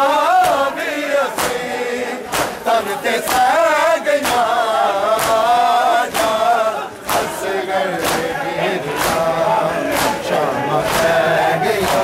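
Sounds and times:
men chanting a lament: 0:00.0 - 0:12.0
hands slapping bare chests: 0:01.4 - 0:01.6, 0:02.3 - 0:02.7, 0:04.2 - 0:04.5, 0:05.2 - 0:05.5, 0:06.1 - 0:06.4, 0:07.0 - 0:07.4, 0:08.0 - 0:09.3, 0:09.9 - 0:11.2.

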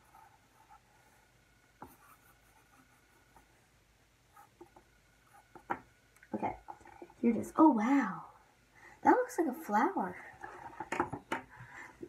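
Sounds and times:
pencil scratching on paper: 0:00.0 - 0:03.6.

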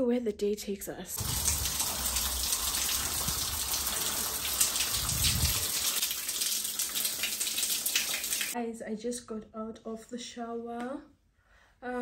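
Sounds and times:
shower water spraying: 0:01.2 - 0:08.6.

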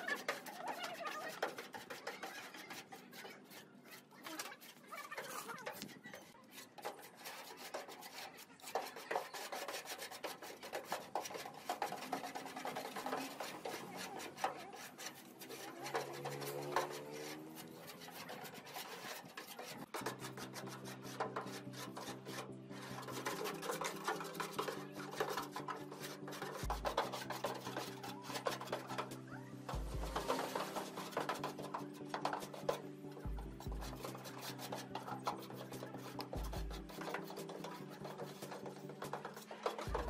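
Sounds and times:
putty spreader scraping metal: 0:00.0 - 0:40.0
background music: 0:10.8 - 0:40.0.

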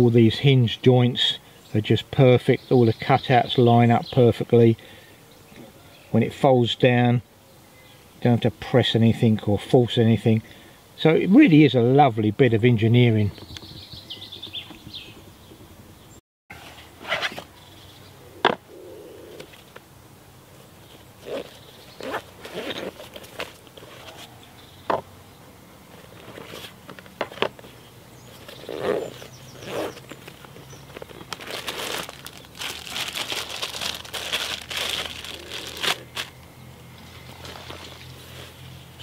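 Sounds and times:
plastic packaging crinkling: 0:28.4 - 0:36.4.

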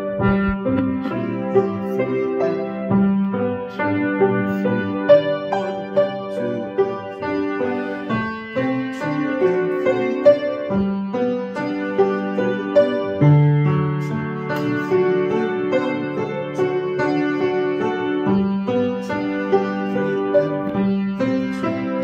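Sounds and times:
grand piano playing: 0:00.0 - 0:22.0.

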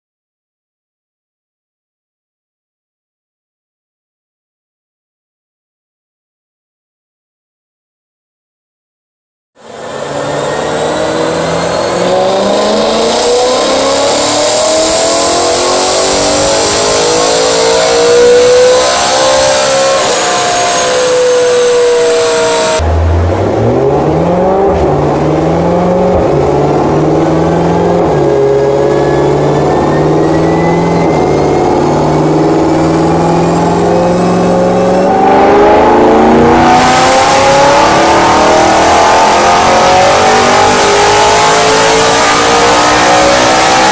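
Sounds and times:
car engine revving hard: 0:09.6 - 0:43.9.

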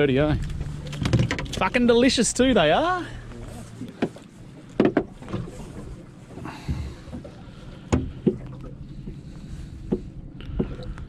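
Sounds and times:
low steady hum: 0:00.0 - 0:11.0
knocks on aluminium boat: 0:04.8 - 0:05.4.

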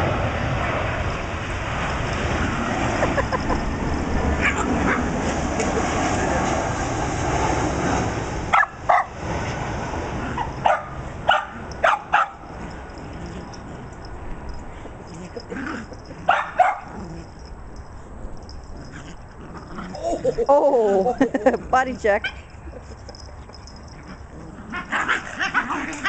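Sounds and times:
puppies yipping: 0:14.5 - 0:26.0.

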